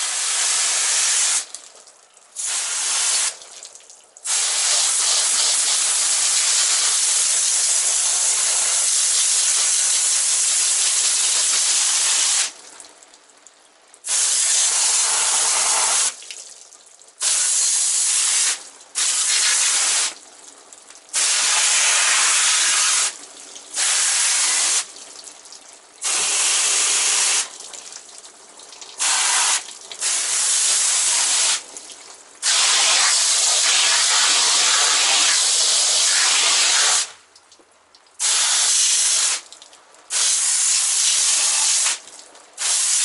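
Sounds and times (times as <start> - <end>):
hose nozzle spraying water: 0.0 - 1.5, 2.4 - 3.4, 4.2 - 12.6, 14.1 - 16.2, 17.2 - 20.2, 21.1 - 23.2, 23.8 - 24.9, 26.0 - 27.6, 29.0 - 31.6, 32.4 - 37.2, 38.2 - 39.5, 40.1 - 43.0.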